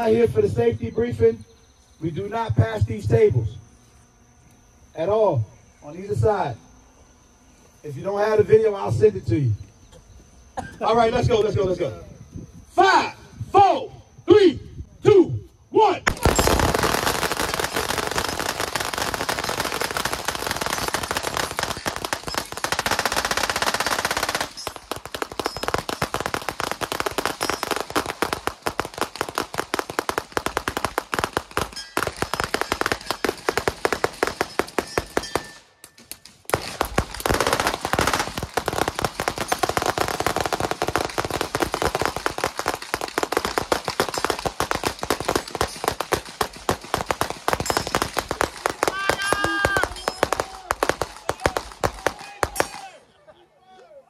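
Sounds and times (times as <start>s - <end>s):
massed rapid gunfire: 16.1s - 35.5s, 36.5s - 52.7s.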